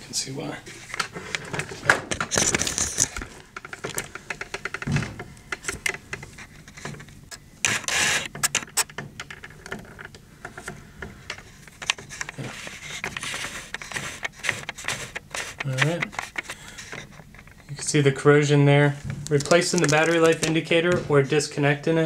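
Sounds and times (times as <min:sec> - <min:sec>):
handling clicks and knocks: 0:00.9 - 0:17.9, 0:19.1 - 0:21.4
rustling: 0:09.7 - 0:21.4.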